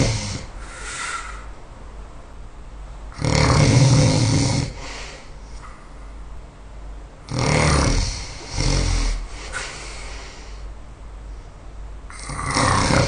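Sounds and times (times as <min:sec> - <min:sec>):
person snoring loudly: 0:00.0 - 0:00.5, 0:03.1 - 0:04.9, 0:07.3 - 0:09.3, 0:12.1 - 0:13.0
quiet breath: 0:00.0 - 0:01.6, 0:04.7 - 0:06.2, 0:08.1 - 0:11.7.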